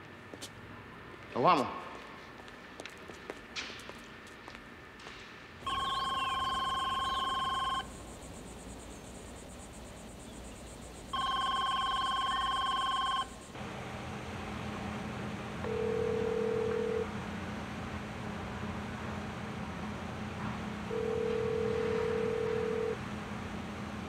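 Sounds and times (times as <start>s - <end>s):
low steady hum: 5.6s - 24.0s
car phone ringing electronic trill: 5.7s - 7.9s, 11.2s - 13.4s, 15.6s - 17.1s, 20.9s - 23.0s.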